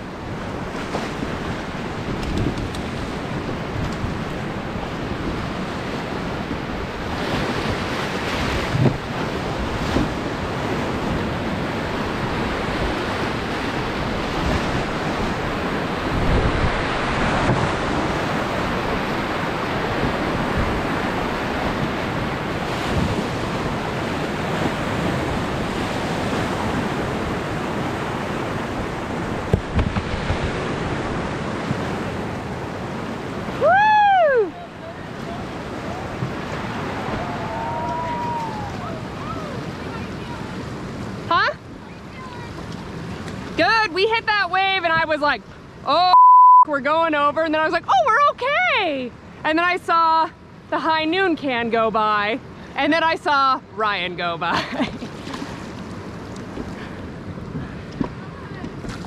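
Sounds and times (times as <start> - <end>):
river water rushing: 0.0 - 44.2
wind buffeting microphone: 0.0 - 45.8.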